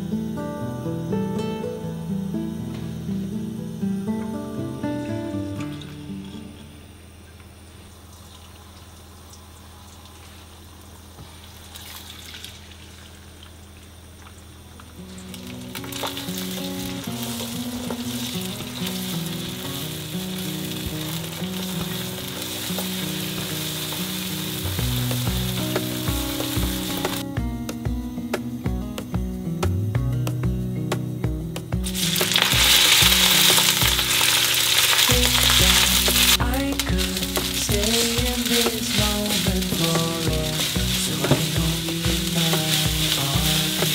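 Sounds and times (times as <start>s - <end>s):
eggs sizzling in hot oil: 15.0s - 27.2s, 31.8s - 43.9s.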